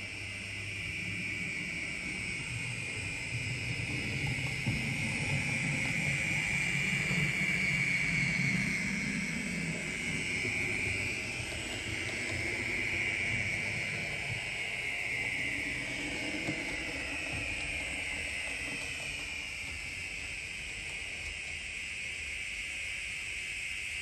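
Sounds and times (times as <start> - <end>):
wheels rumbling on rails: 0.0 - 21.5
model train motor whine: 0.0 - 24.0.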